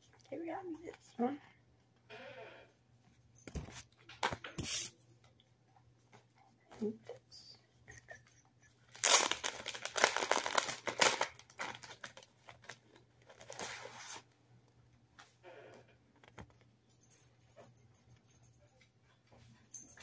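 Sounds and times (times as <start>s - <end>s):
plastic bag crinkling and tearing: 8.9s - 14.2s.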